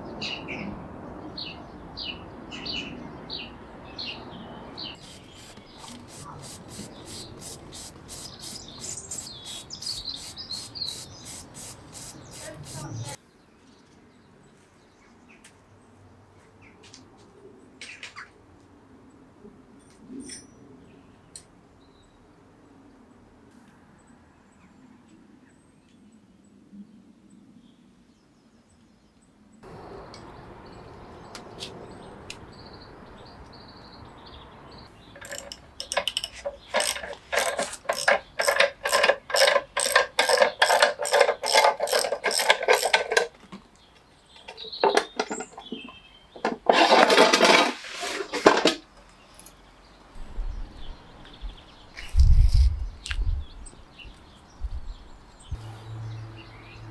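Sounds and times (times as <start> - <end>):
birds chirping faintly: 0.1 - 16.8, 24.0 - 46.7
ratchet wrench clicking: 5.0 - 12.8, 35.2 - 43.3.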